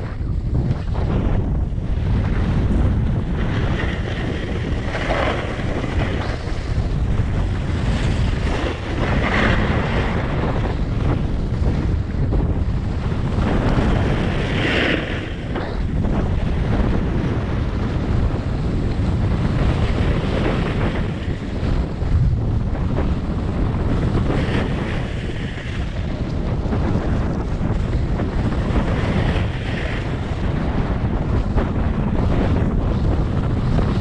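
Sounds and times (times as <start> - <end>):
wind buffeting microphone: 0.0 - 34.0
snowboard scraping on snow: 0.1 - 22.1.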